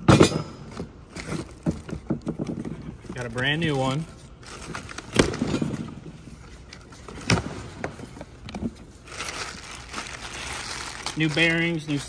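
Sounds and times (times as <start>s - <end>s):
plastic wrapping crinkling: 3.0s - 5.2s, 6.2s - 12.0s.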